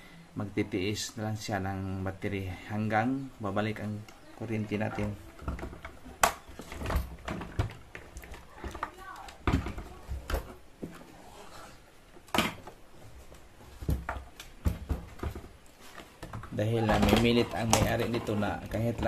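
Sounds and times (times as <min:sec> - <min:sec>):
radio case knocks and clicks: 0:05.3 - 0:10.6.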